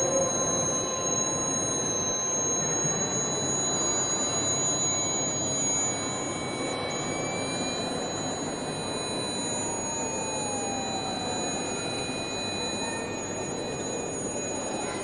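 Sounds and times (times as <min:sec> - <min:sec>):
high sine tones: 0:00.0 - 0:15.0
tone sliding down in pitch: 0:03.5 - 0:15.0.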